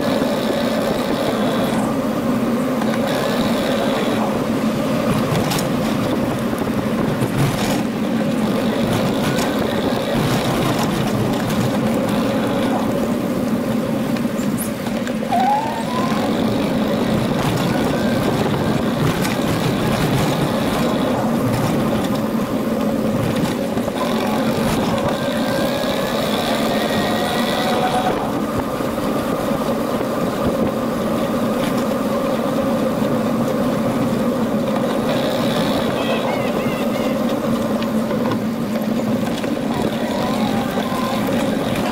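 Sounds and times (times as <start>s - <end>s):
bicycle riding noise: 0.0s - 41.9s
short rising squeak: 15.3s - 16.4s.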